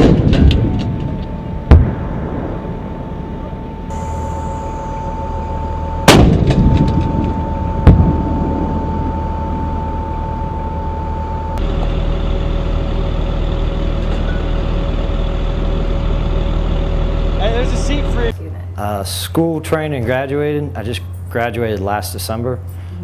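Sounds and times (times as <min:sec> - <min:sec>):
cannon blast: 0:00.0 - 0:05.2, 0:06.0 - 0:09.1
diesel engine running: 0:00.0 - 0:21.5
sharp bang: 0:01.6 - 0:09.2.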